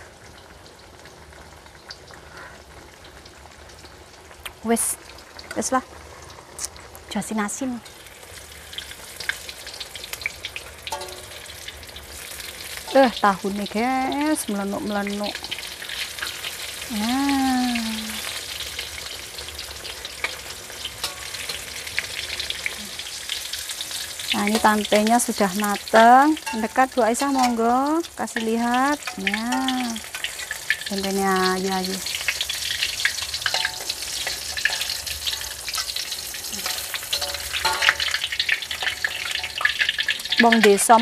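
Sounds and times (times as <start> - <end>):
food deep-frying in hot oil: 0.0 - 41.0
metal utensils scraping a wok: 7.9 - 13.5, 18.2 - 27.7, 29.0 - 41.0
spatula knocking against pan: 10.9 - 11.3, 37.1 - 38.2
person humming: 16.9 - 18.2.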